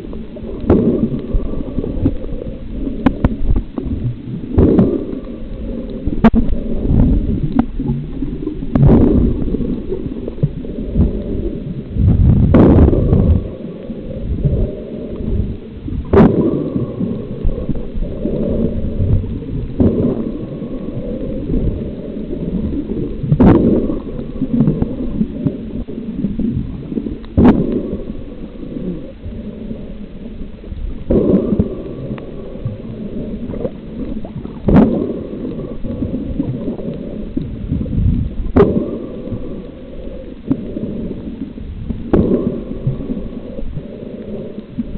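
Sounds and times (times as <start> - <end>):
underwater churning rumble: 0.0 - 44.9
sharp underwater crack: 8.7 - 10.1, 12.0 - 13.6, 16.0 - 17.8, 18.4 - 20.6, 27.3 - 28.1, 33.5 - 37.0, 37.9 - 39.6, 42.0 - 43.2.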